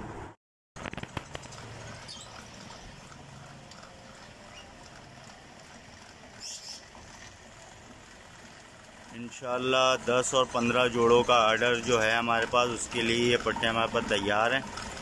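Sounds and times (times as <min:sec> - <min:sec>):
small birds chirping: 0:01.3 - 0:03.2, 0:03.8 - 0:04.9, 0:06.2 - 0:07.0.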